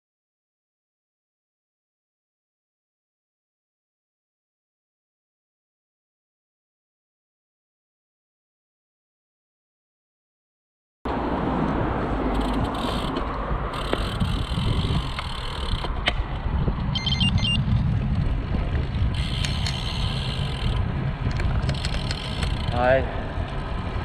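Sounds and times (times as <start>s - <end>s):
tyres on road: 11.1s - 24.0s
wind noise on microphone: 11.3s - 24.0s
high beeps: 17.0s - 17.6s.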